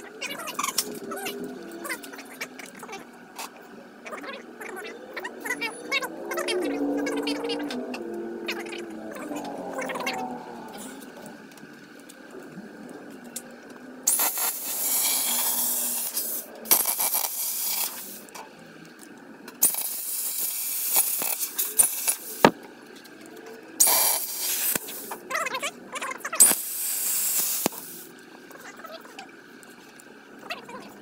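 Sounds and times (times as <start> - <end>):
welding arc crackling and hissing: 14.0 - 18.3, 19.6 - 22.6, 23.8 - 25.3, 26.4 - 28.1.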